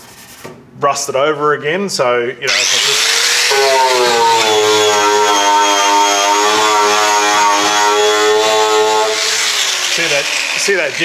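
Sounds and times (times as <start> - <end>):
angle grinder whining: 2.5 - 11.0
disc scrubbing metal: 2.5 - 11.0.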